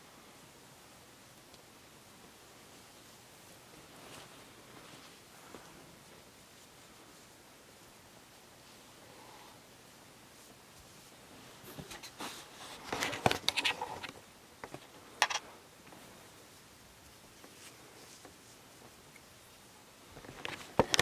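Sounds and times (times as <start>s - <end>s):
rustling against microphone: 2.6s - 7.4s, 10.2s - 19.1s.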